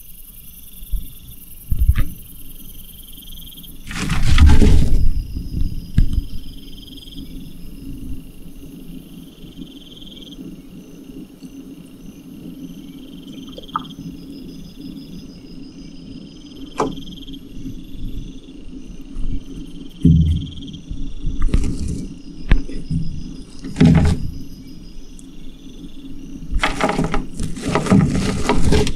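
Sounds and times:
buzzing insect calls: 0.0 - 28.9
low thump: 20.0 - 20.7.

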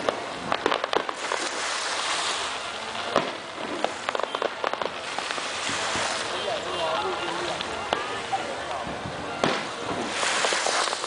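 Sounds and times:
fireworks crackling: 0.0 - 11.0
firework bang: 3.1 - 6.1, 9.4 - 11.0.

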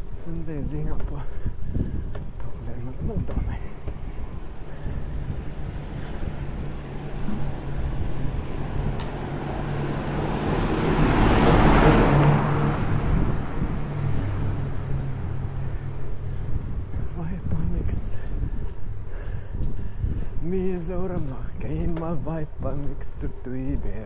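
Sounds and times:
low traffic hum: 0.0 - 24.0
vehicle passing: 3.2 - 17.2.

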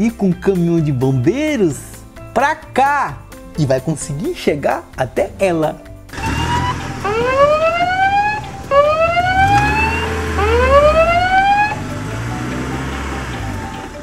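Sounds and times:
fire engine siren wailing: 6.1 - 13.1.

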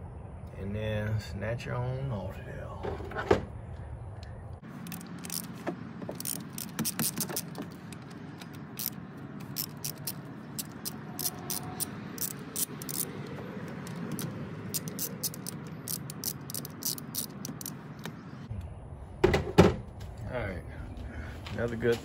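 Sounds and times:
socket ratchet clicking: 4.8 - 18.2.

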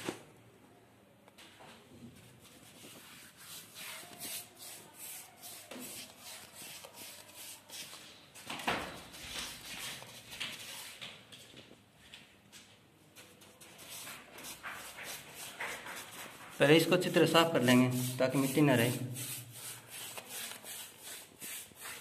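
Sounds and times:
paintbrush scratching on steel: 2.7 - 8.0, 13.8 - 22.0.

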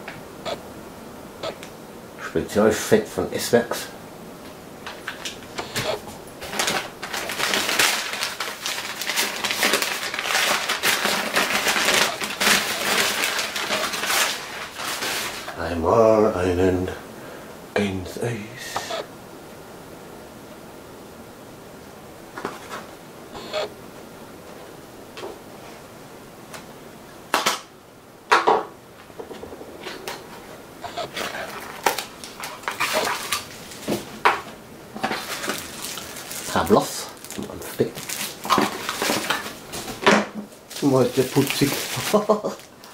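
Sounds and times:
packing paper crackling: 4.9 - 15.6, 30.8 - 34.0, 35.0 - 39.9, 40.6 - 42.9.

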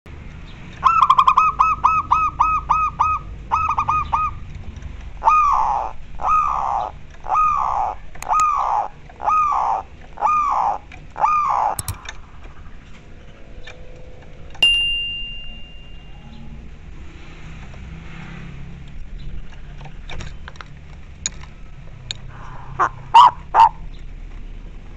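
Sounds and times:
dove cooing: 5.2 - 11.8, 22.8 - 23.8
sharp click: 11.8 - 12.2
high ringing chime: 14.6 - 16.8.

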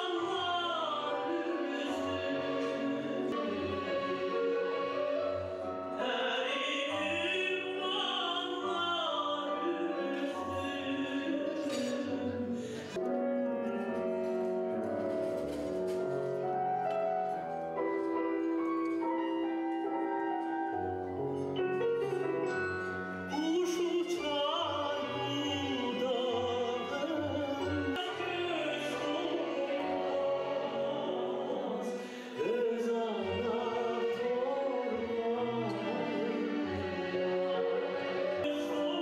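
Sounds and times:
person singing: 6.0 - 13.0, 23.3 - 39.0.

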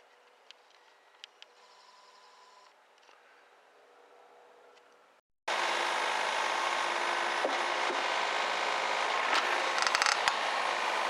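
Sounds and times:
excavator diesel engine running: 5.5 - 11.0
short creaks and clicks: 9.7 - 10.4.

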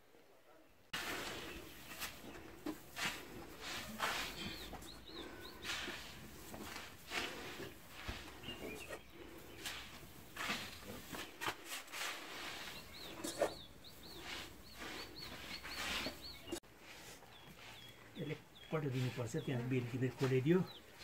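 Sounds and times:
bowl scooping loose grain: 1.0 - 18.0
small bird chirping: 4.1 - 6.1, 8.3 - 9.9, 12.3 - 16.6, 17.3 - 21.0.

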